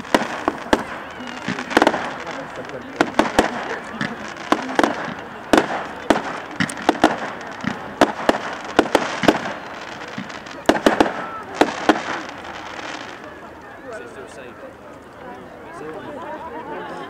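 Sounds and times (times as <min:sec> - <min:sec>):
aerial fireworks bangs: 0:00.0 - 0:13.2.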